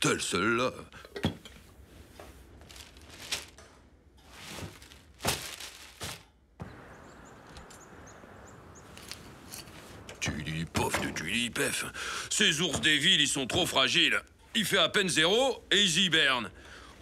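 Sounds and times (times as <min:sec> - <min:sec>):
newspaper rustling: 0:02.0 - 0:06.3.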